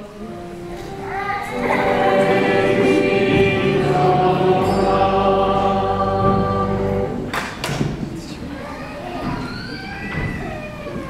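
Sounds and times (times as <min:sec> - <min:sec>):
voices singing together: 0:01.4 - 0:07.3.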